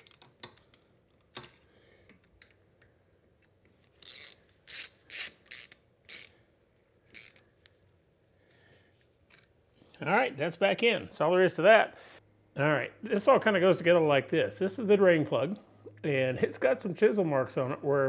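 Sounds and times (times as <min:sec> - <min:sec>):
socket ratchet ratcheting: 0:04.0 - 0:06.3, 0:07.1 - 0:07.4.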